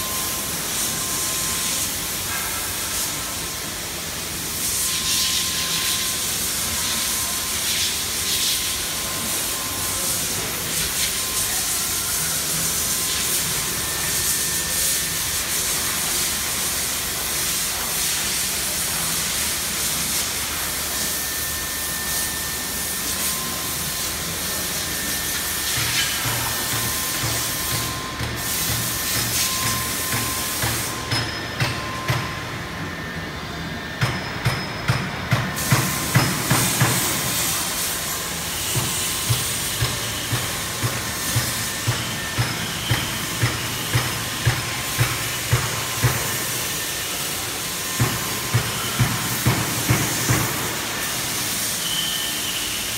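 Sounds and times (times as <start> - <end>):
faint high whine: 0.0 - 34.9, 50.5 - 52.9
machine air hiss and motor noise: 0.0 - 52.9.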